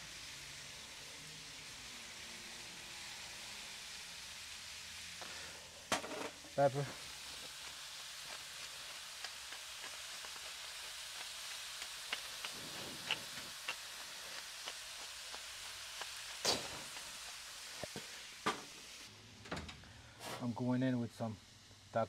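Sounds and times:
vegetables sizzling in skillet: 0.0s - 19.2s, 20.1s - 22.0s
oil pops and crackles: 5.2s - 18.9s.

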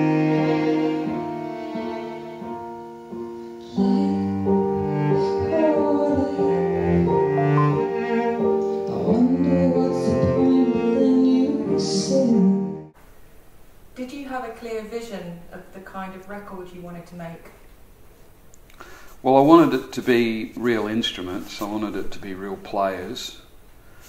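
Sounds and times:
violin and cello strings: 0.0s - 2.9s, 3.6s - 12.6s
digital piano: 0.0s - 13.0s
woman singing: 3.6s - 7.2s, 8.8s - 12.8s.

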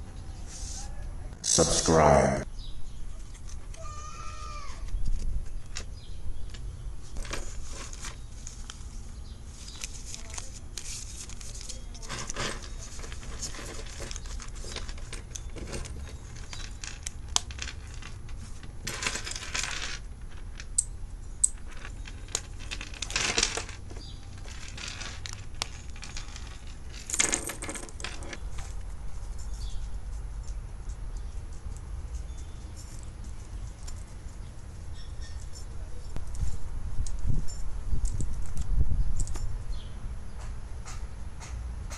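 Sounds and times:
bills and leather rustling: 6.5s - 20.6s, 21.5s - 39.4s.

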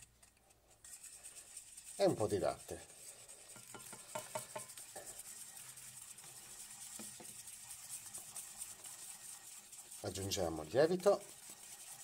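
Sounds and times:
whisk scraping a steel bowl: 0.0s - 12.0s.

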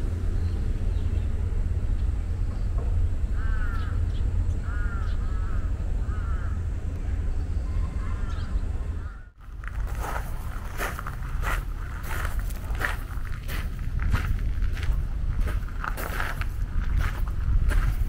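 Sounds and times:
steady low rumble: 0.0s - 18.0s
crow cawing: 3.4s - 4.0s, 4.6s - 6.7s, 9.0s - 9.4s.

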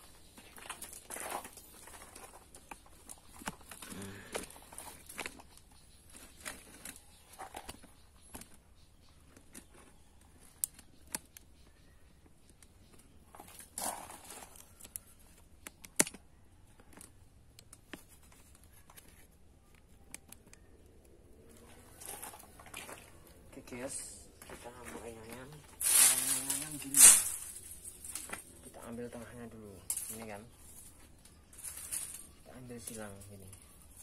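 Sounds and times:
bamboo strips rustling and scraping: 0.0s - 11.9s, 12.5s - 19.4s, 20.1s - 34.0s
bamboo strips clicking together: 14.7s - 16.3s.

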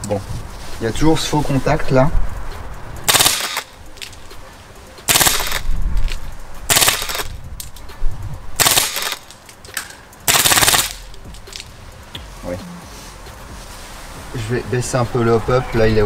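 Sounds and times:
airsoft machine gun bursts: 3.1s - 3.7s, 5.1s - 5.7s, 6.7s - 7.3s, 8.6s - 9.2s, 10.3s - 11.0s.

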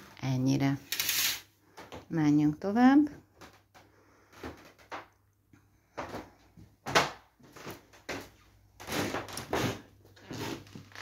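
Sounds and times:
footsteps and handling knocks: 5.8s - 11.0s.

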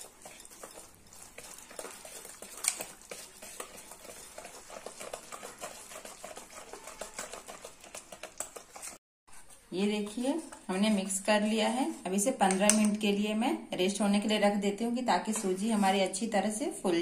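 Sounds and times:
whisk beating batter in metal bowl: 0.0s - 13.0s.

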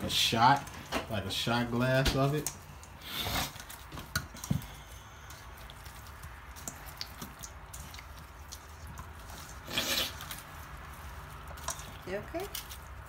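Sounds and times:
wet squelching of chicken: 0.0s - 13.0s.

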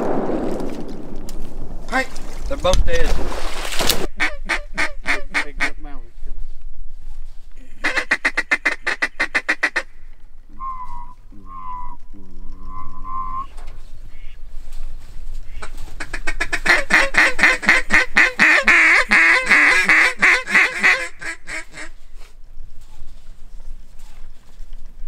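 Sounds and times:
duck quacking: 4.1s - 6.0s, 7.8s - 9.9s, 15.5s - 21.9s.

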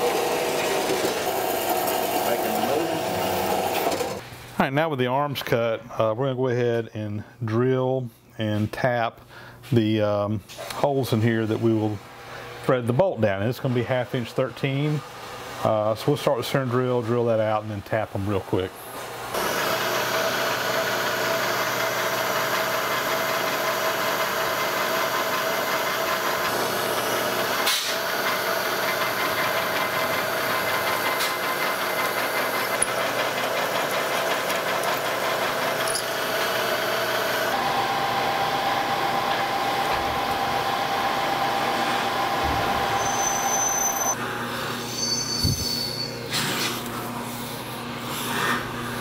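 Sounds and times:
drill press boring into steel: 0.0s - 4.2s, 19.4s - 44.2s.

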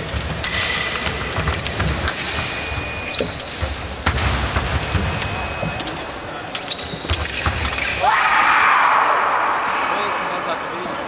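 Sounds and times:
shoe squeaks: 2.4s - 3.9s, 4.8s - 7.9s.

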